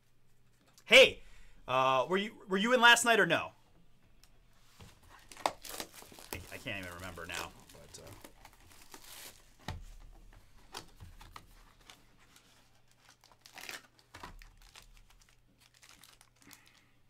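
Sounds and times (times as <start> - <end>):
plastic wrap tearing and crinkling: 5.1 - 9.6, 10.7 - 16.9.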